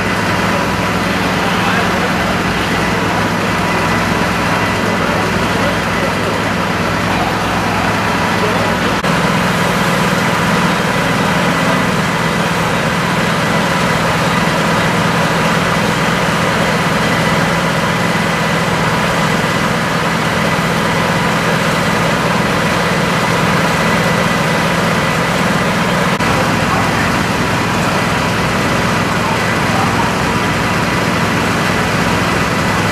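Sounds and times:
diesel engine idling: 0.0 - 32.9.

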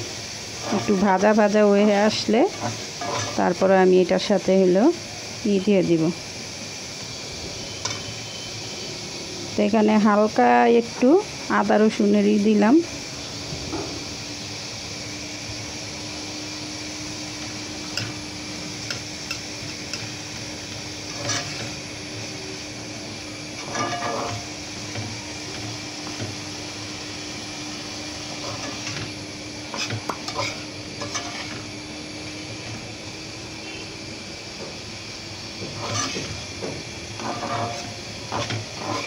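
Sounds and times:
food sizzling: 0.0 - 39.0
metal spatula scraping a frying pan: 0.6 - 1.3, 2.4 - 3.6, 20.9 - 21.8, 23.5 - 26.4, 28.3 - 31.7, 35.7 - 36.5, 37.2 - 39.0.

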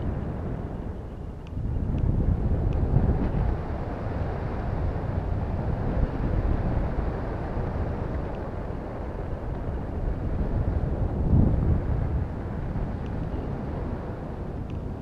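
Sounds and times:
wind buffeting microphone: 0.0 - 15.0
faint tick: 1.4 - 2.9, 8.1 - 8.5, 13.0 - 13.2, 14.6 - 14.9.

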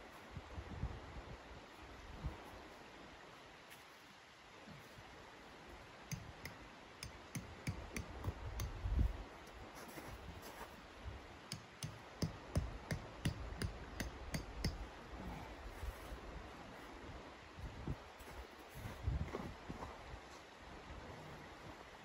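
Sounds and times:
tent peg clicks and taps: 6.0 - 9.6, 11.4 - 14.9.

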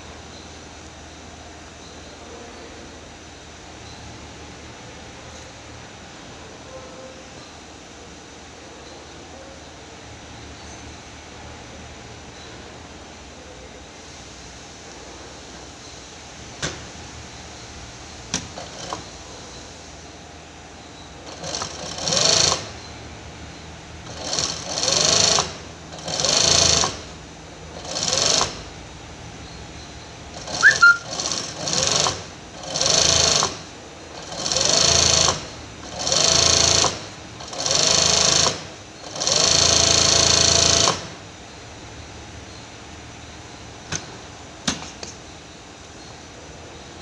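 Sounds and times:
sewing machine stitching: 18.3 - 19.1, 21.2 - 22.7, 24.0 - 27.1, 27.8 - 28.7, 30.4 - 41.2.

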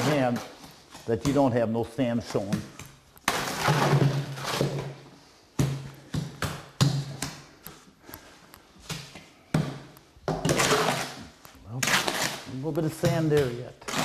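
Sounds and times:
hoe scraping mortar in wheelbarrow: 3.3 - 4.9, 10.4 - 13.0, 13.8 - 14.0.

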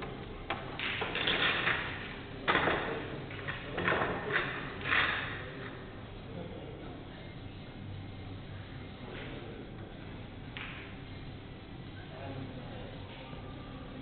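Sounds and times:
pool balls clacking: 0.0 - 5.9.

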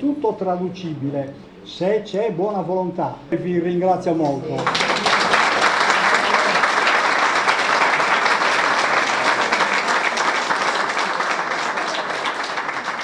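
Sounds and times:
audience applauding: 4.6 - 13.0.

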